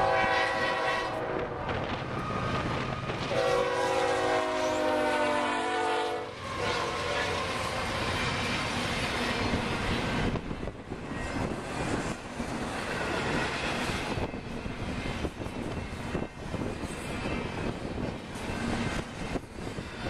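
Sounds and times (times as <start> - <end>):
freight train wheels rumbling: 0.0 - 20.0
wind buffeting microphone: 1.2 - 3.5, 7.4 - 20.0.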